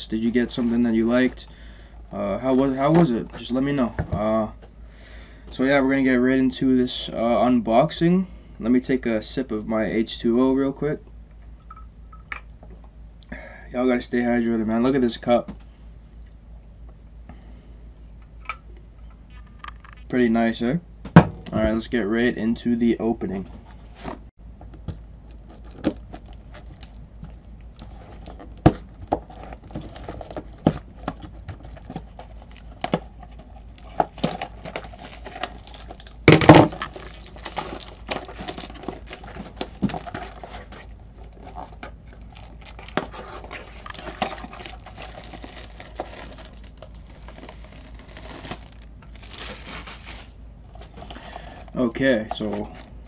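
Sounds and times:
plastic wrapping crinkling: 24.8 - 51.3
cardboard rustling: 24.9 - 51.6.

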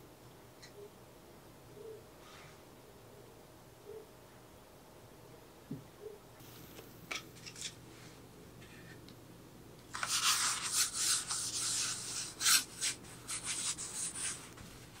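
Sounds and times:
paintbrush strokes on plywood: 10.0 - 15.0.

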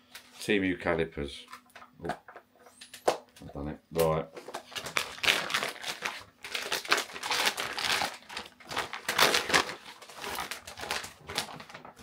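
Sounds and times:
plastic bag crinkling: 4.4 - 12.0.

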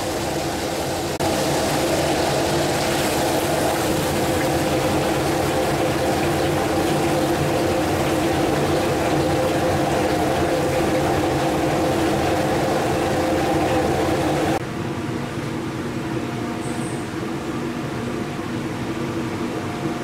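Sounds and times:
gas burner roaring: 0.0 - 14.6
hot oil sizzling: 0.0 - 14.6.

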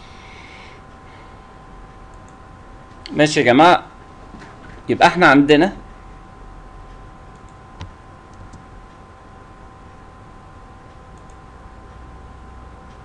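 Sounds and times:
computer mouse click: 7.3 - 8.6, 11.2 - 11.4.

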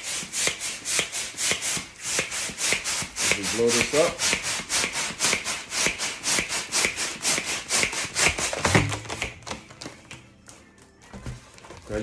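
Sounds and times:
hand pump puffing air: 0.0 - 8.9
foil crinkling: 11.1 - 12.0.

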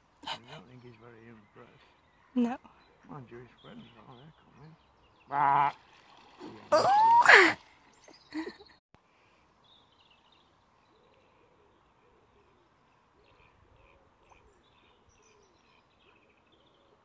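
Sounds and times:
birds twittering: 0.6 - 6.3, 7.7 - 8.8, 9.6 - 17.0.

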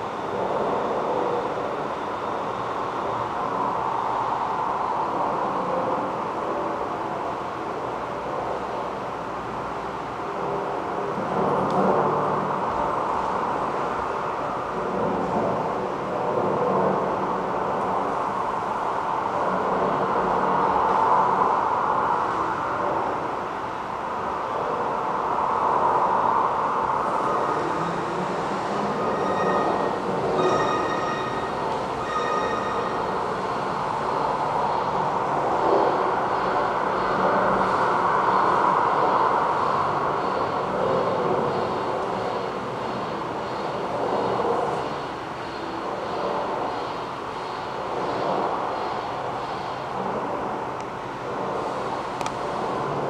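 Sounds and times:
steady rushing noise: 0.0 - 53.0
train passing: 0.0 - 53.0
high wheel squeal: 28.8 - 33.8.

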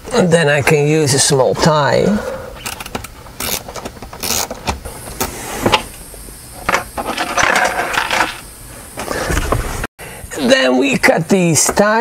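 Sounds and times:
wires rustling and clicking: 2.6 - 5.8.

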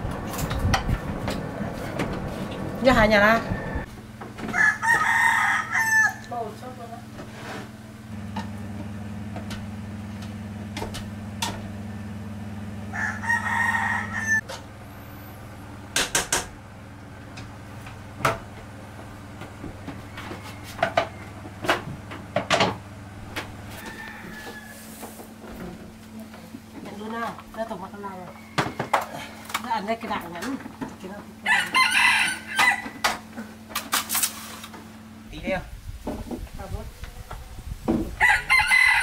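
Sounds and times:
rooster crowing: 3.2 - 6.3, 12.9 - 14.4, 19.9 - 21.4, 23.7 - 25.3, 28.1 - 29.4, 31.4 - 33.2, 38.1 - 39.0.

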